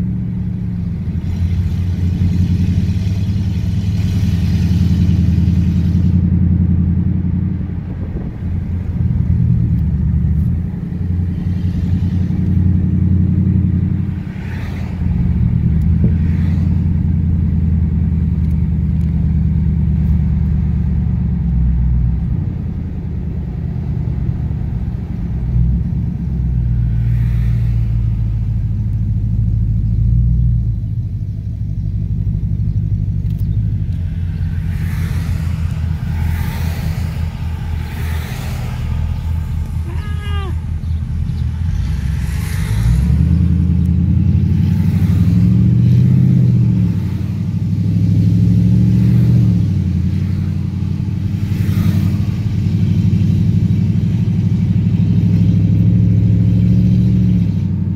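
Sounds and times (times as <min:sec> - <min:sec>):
car engine and exhaust rumble: 0:00.0 - 0:57.9.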